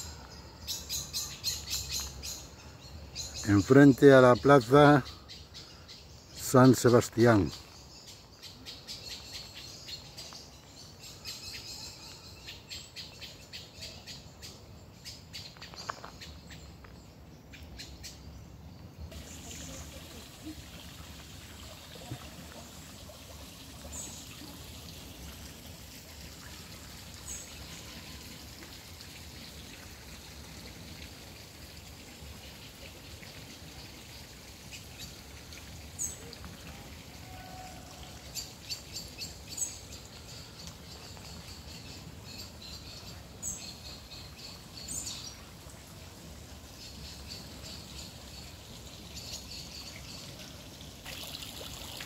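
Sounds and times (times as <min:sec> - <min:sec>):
trickling water: 0:00.0 - 0:16.8, 0:19.1 - 0:52.0
small birds chirping: 0:00.0 - 0:21.0.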